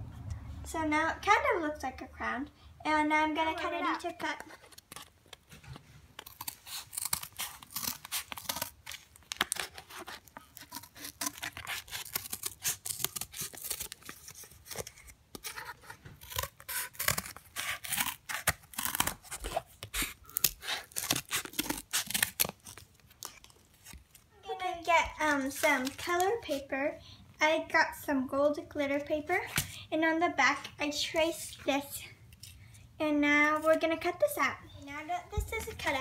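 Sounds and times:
scissors cutting cardboard: 4.2s - 24.1s.

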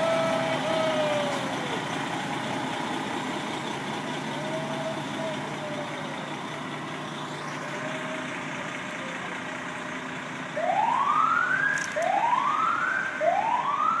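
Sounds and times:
fire truck engine running: 0.0s - 14.0s
siren whoops rising in pitch: 10.6s - 14.0s.

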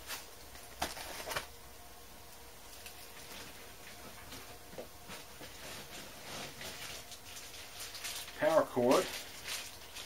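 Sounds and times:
packaging rustling: 0.0s - 1.5s, 4.2s - 10.0s
low steady hum: 0.0s - 10.0s.

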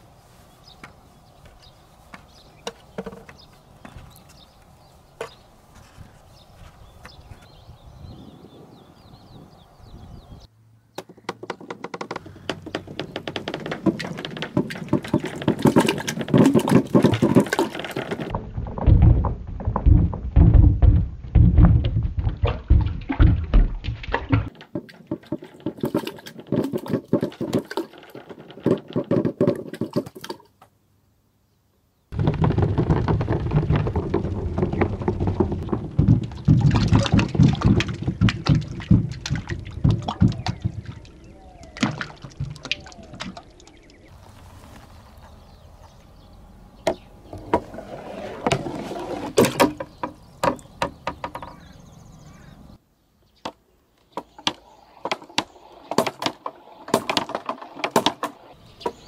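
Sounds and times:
balls clattering down wooden chute: 2.6s - 4.1s, 11.0s - 30.6s, 32.1s - 43.4s, 46.9s - 51.6s, 54.2s - 59.0s
water splashing and sloshing: 12.6s - 20.5s, 21.3s - 30.5s, 32.2s - 45.2s.

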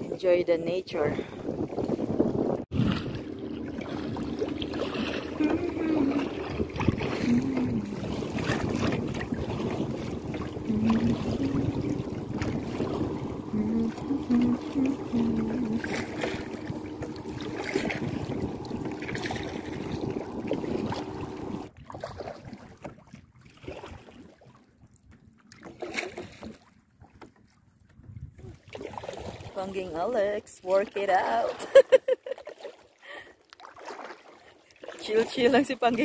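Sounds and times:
wind buffeting microphone: 0.0s - 22.2s, 27.9s - 28.6s
water moving around a kayak: 0.0s - 36.0s
small water splashes: 2.6s - 27.6s, 28.3s - 29.9s, 30.6s - 36.0s
steady low hum: 2.7s - 21.7s.

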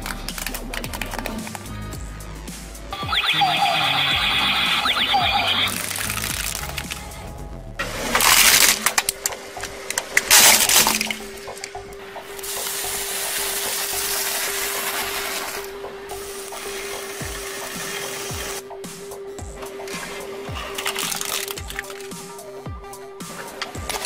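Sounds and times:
tyre crushing brittle objects: 0.0s - 1.7s, 5.6s - 7.1s, 7.9s - 11.8s, 19.9s - 22.4s, 23.8s - 24.0s
firework spraying sparks: 12.4s - 18.6s.

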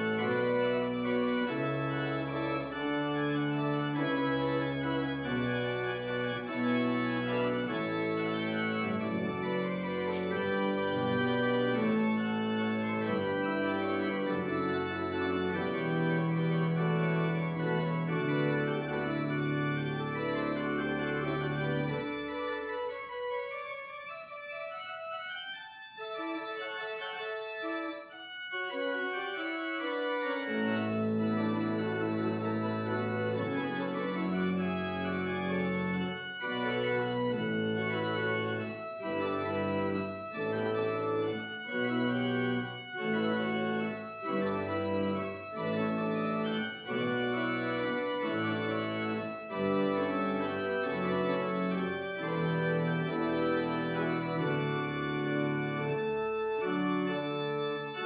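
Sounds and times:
church organ chords: 0.0s - 58.0s.

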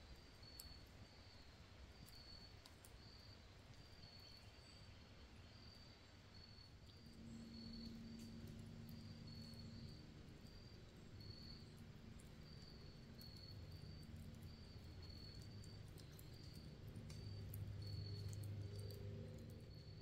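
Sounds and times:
campfire crackling: 0.0s - 4.5s, 6.8s - 20.0s
low steady hum: 0.0s - 20.0s
faint high chirps: 5.8s - 20.0s.

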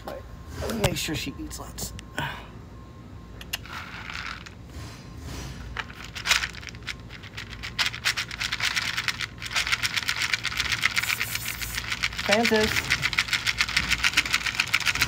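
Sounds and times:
kibble rattling in plastic bowl: 3.6s - 4.6s, 5.8s - 15.0s
cat crunching kibble: 5.8s - 15.0s.

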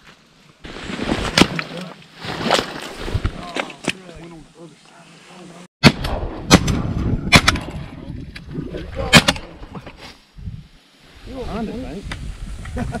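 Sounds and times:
shotgun blasts: 5.8s - 7.9s, 9.1s - 9.5s.

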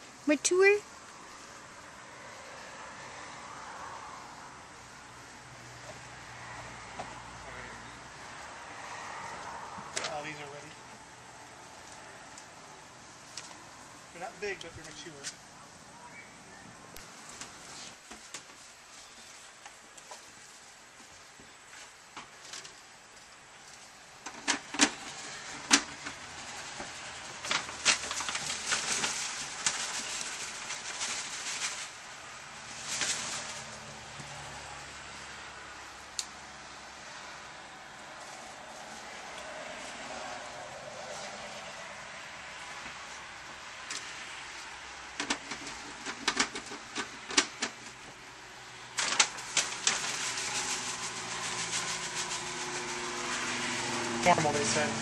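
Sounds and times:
paper bag rustling: 24.6s - 34.1s, 48.8s - 55.0s.

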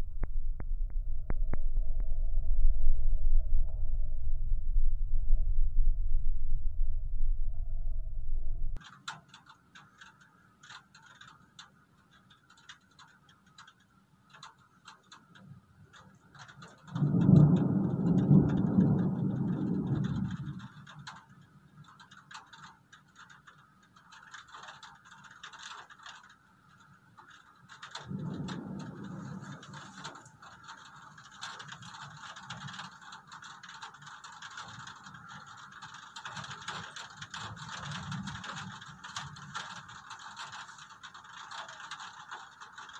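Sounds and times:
thunder rumbling: 0.0s - 8.8s, 16.8s - 21.2s, 28.0s - 33.0s
rain crackling: 6.7s - 42.9s.

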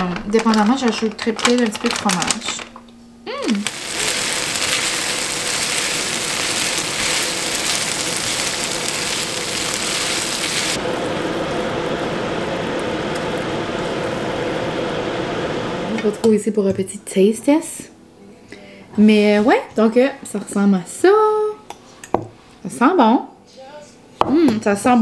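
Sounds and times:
food sizzling in frying pan: 3.4s - 16.3s.

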